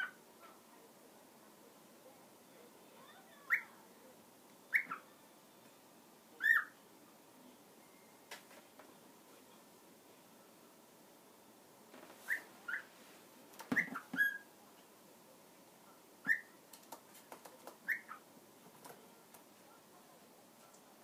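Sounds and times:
cockatiel whistled chirps: 0:04.7 - 0:05.0, 0:06.4 - 0:06.7, 0:12.3 - 0:12.9, 0:13.7 - 0:14.5, 0:16.2 - 0:16.5, 0:17.9 - 0:18.2
beak tapping cardboard: 0:16.7 - 0:17.9.

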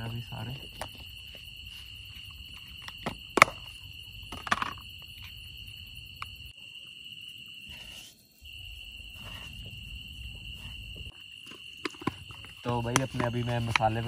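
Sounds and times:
night insects droning: 0:00.0 - 0:14.0.

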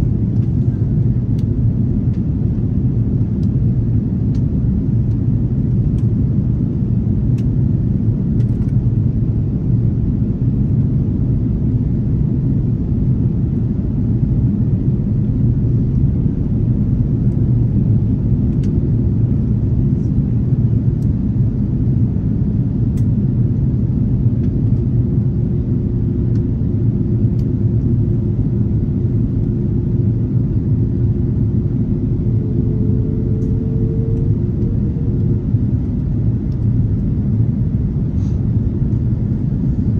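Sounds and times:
airliner cabin engine rumble: 0:00.0 - 0:39.9
faint steady hum: 0:00.0 - 0:39.9.

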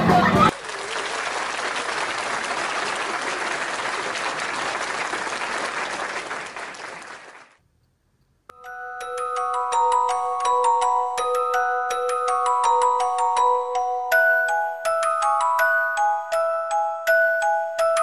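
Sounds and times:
crowd applauding: 0:00.0 - 0:07.6
chiming tune: 0:08.5 - 0:18.0.

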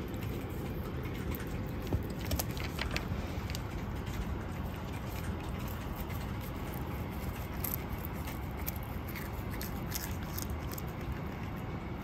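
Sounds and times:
cat chewing and licking: 0:00.0 - 0:12.0
low background rumble: 0:00.0 - 0:12.0.

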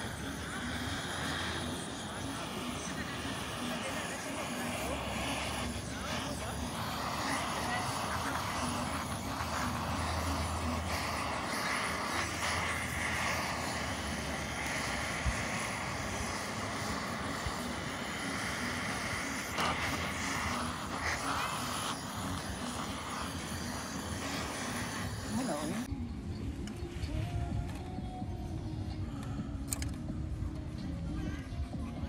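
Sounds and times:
gas torch hissing: 0:00.0 - 0:25.9.

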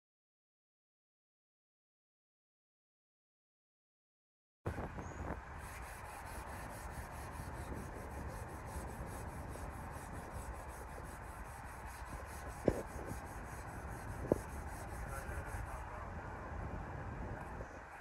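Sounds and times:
sandpaper scraping metal: 0:05.6 - 0:15.8.

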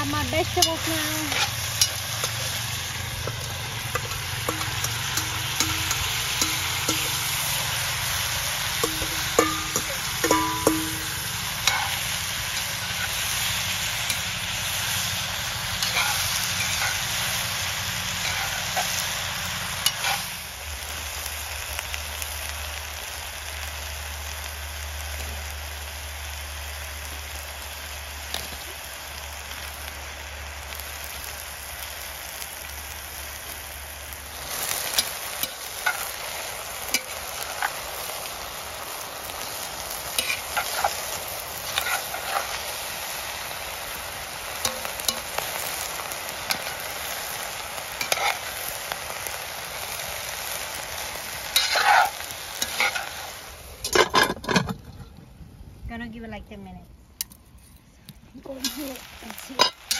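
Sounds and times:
food sizzling in a pot: 0:00.0 - 0:54.9, 0:58.0 - 0:59.9
metal spoon scraping a pot: 0:08.8 - 0:13.2, 0:15.8 - 0:17.1, 0:51.6 - 0:53.2.

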